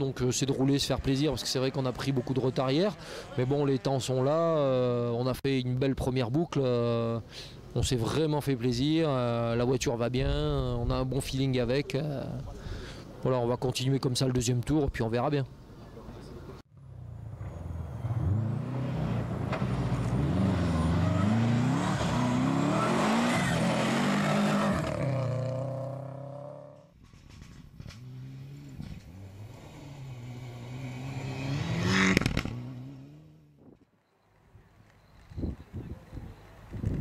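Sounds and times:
car passing close: 16.8 - 26.6, 27.8 - 33.4
rally car engines revving: 16.8 - 26.8, 27.4 - 33.4.

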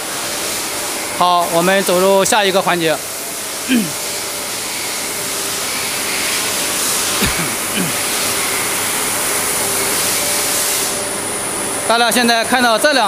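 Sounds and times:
machine tools hissing din: 3.5 - 5.0, 5.6 - 8.8
short knock: 7.2 - 7.6.

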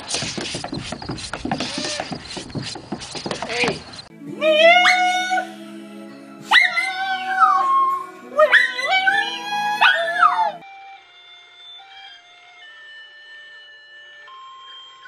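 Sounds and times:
music: 4.1 - 11.1, 11.8 - 15.0
dog howling: 4.3 - 5.6, 6.5 - 10.6
electronic toy melody: 7.9 - 15.0.

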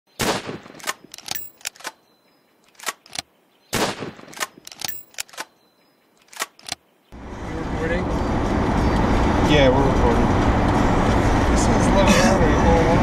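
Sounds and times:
gunshots with ringing tail: 0.2 - 0.8, 3.7 - 4.4
sharp gun action clicks: 0.7 - 5.6, 6.2 - 6.8.

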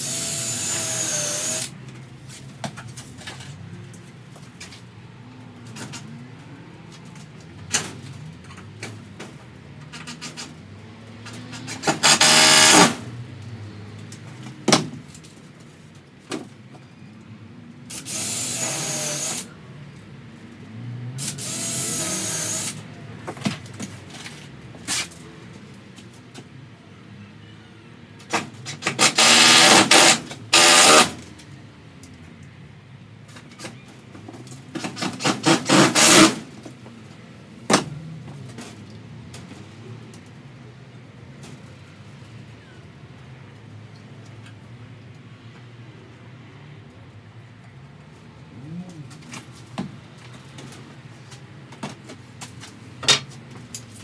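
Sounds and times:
cordless drill-driver running: 0.0 - 1.7, 12.0 - 12.9, 18.0 - 19.5, 21.3 - 22.8, 29.0 - 31.1, 35.7 - 36.3.

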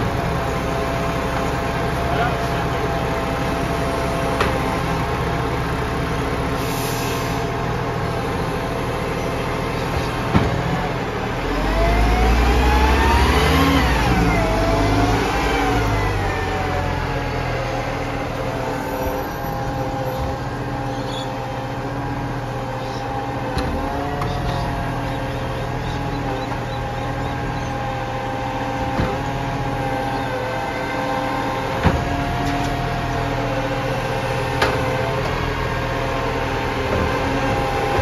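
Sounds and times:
garbage truck diesel engine revving: 0.0 - 38.0.

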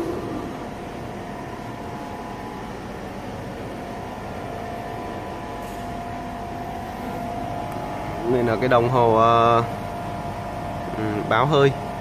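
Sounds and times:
machinery hum: 0.0 - 12.0.

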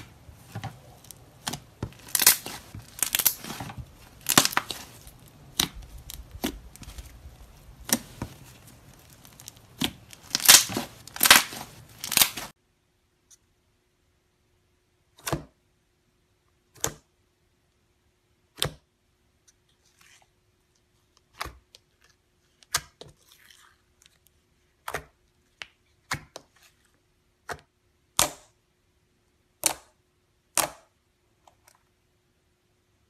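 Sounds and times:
soft crackling: 0.0 - 12.6.

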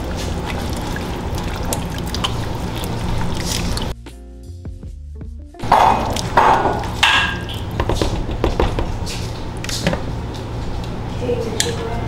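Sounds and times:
utensils knocking against cookware: 5.6 - 8.9.

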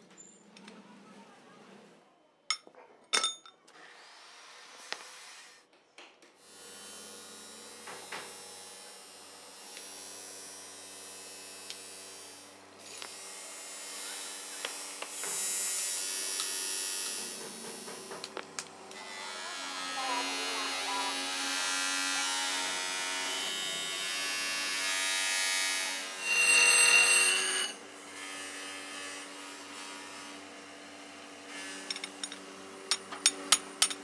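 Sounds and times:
bench grinder hissing against steel: 26.0 - 27.8
steel rubbing and scraping: 26.0 - 27.8
steel parts clinking: 31.9 - 34.0.

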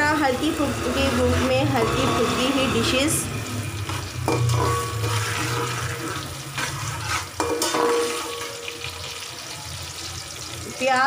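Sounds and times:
onions sizzling in oil: 0.0 - 11.0
metal spatula scraping pot: 3.8 - 9.3.

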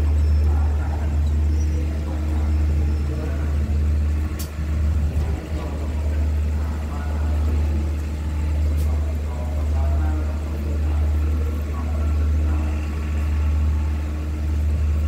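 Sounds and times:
diesel train engine idling: 0.0 - 15.0
faint click: 4.4 - 4.6.

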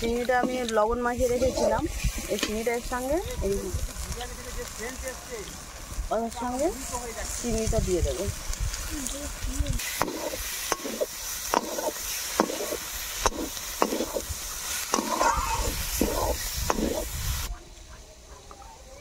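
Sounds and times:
spatula stirring and scraping: 0.0 - 3.2, 9.8 - 17.1
oil sizzling: 0.0 - 18.0.

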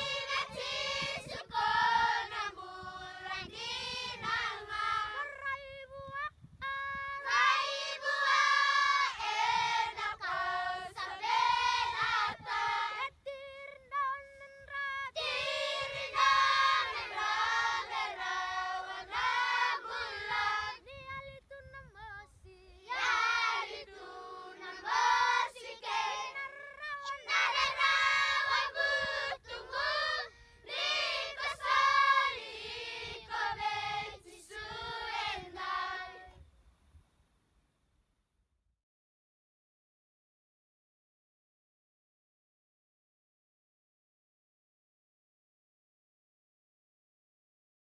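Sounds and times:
children singing in chorus: 0.0 - 5.3, 7.2 - 13.1, 15.1 - 20.8, 22.9 - 36.3.

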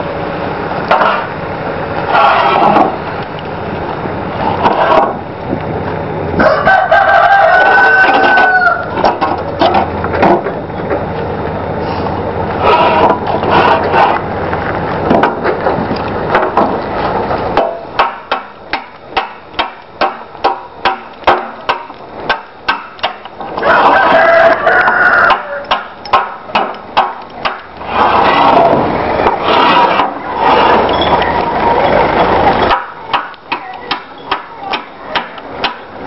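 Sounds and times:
rooster crowing: 6.4 - 9.0, 23.6 - 25.9.

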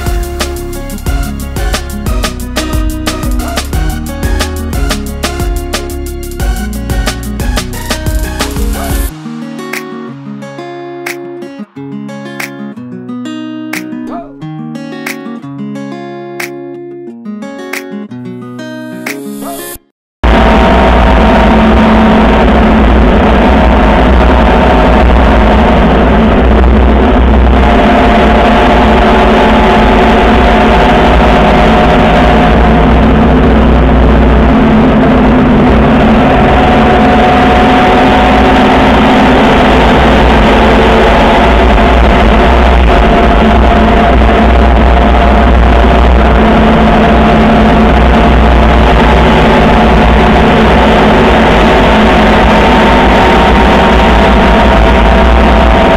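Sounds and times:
vehicle engine running: 20.2 - 55.9
wind rumble on microphone: 20.2 - 55.9.

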